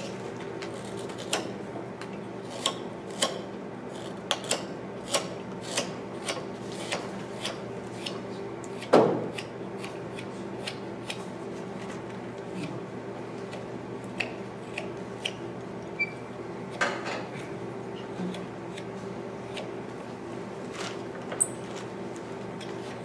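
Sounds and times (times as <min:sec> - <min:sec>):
knife carving wood chips: 0:00.0 - 0:01.5, 0:02.5 - 0:11.2, 0:13.5 - 0:15.4.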